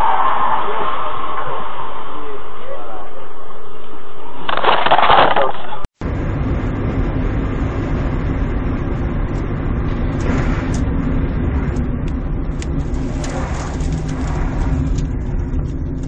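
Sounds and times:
car engine and road noise: 0:05.9 - 0:16.0.

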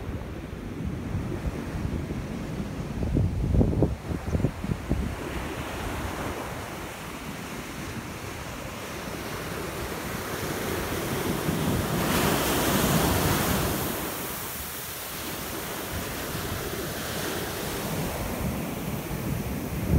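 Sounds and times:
wind buffeting microphone: 0:00.0 - 0:19.9
ocean surf breaking: 0:03.9 - 0:19.9.

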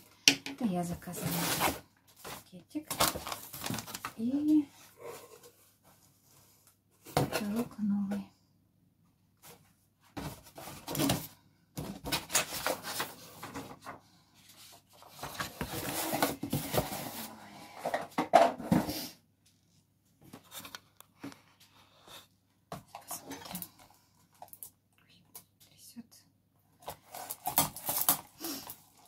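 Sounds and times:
paper and plastic packaging rustling: 0:00.6 - 0:07.6, 0:09.4 - 0:18.1, 0:26.8 - 0:29.0.

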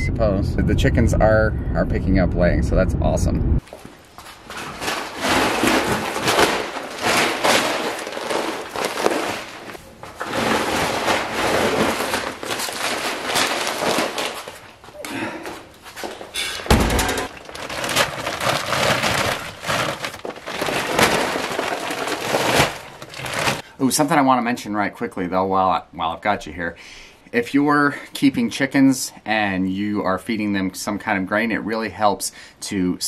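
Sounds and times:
feed sacks rustling and scraping: 0:03.6 - 0:15.0, 0:15.6 - 0:23.6.

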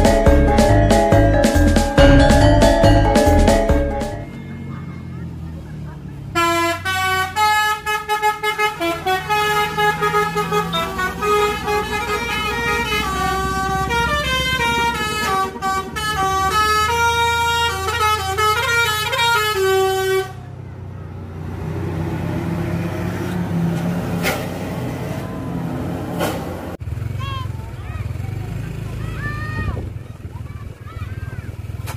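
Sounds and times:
bus horn playing melody: 0:00.0 - 0:05.1, 0:06.3 - 0:20.5
bus engine rumble: 0:00.0 - 0:31.9.

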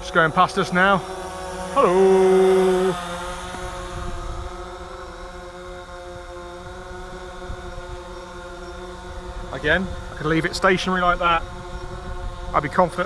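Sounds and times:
drone propellers humming: 0:00.0 - 0:13.0
wind rumbling on microphone: 0:03.3 - 0:05.2, 0:06.5 - 0:13.0.

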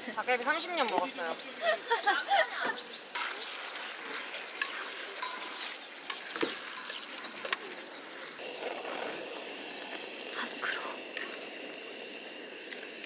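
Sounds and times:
high whistled chirps: 0:01.3 - 0:03.2, 0:08.4 - 0:13.0
food sizzling on griddle pan: 0:08.4 - 0:13.0.

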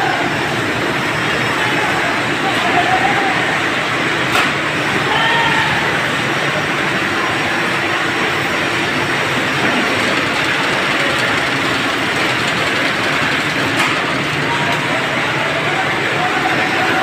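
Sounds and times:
fruit grading machine running: 0:00.0 - 0:17.0.

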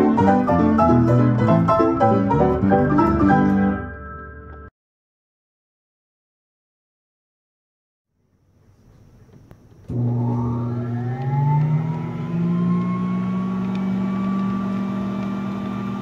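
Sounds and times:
pump motor hum and whine: 0:09.9 - 0:16.0.

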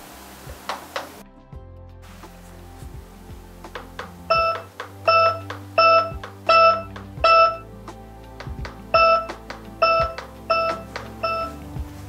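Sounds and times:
background music: 0:00.0 - 0:12.0
receiver beeping: 0:04.3 - 0:07.6, 0:08.9 - 0:11.7.

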